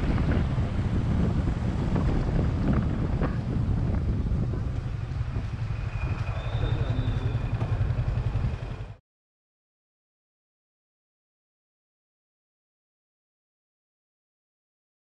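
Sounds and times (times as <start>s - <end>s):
motorcycle engine running: 0.0s - 9.0s
wind rumbling on microphone: 0.0s - 9.0s.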